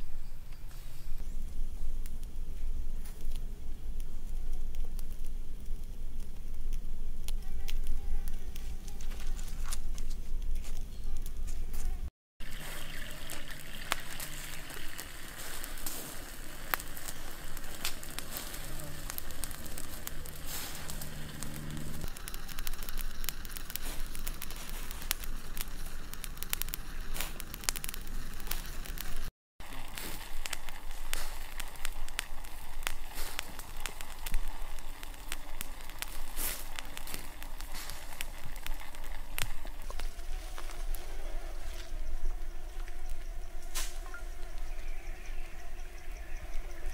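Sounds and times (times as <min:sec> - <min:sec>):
wood fire crackling and popping: 0:00.0 - 0:46.9
fly buzzing: 0:14.2 - 0:27.6, 0:38.8 - 0:46.9.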